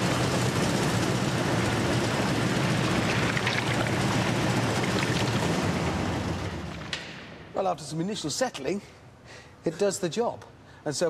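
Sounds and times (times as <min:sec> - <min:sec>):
shaking rig motor hum: 0:00.0 - 0:06.9.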